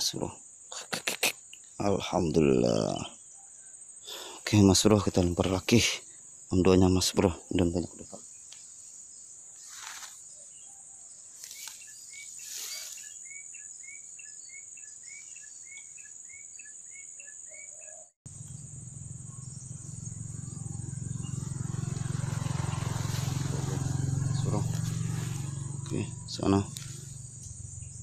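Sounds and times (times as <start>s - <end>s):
insects droning: 0.0s - 28.0s
short bird chirps: 9.6s - 18.6s.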